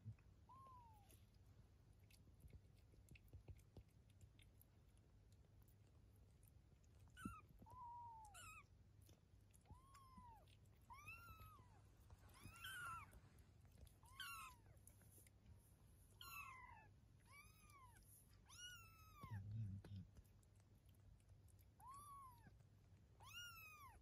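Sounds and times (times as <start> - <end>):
kitten mewing: 16.2 - 20.1.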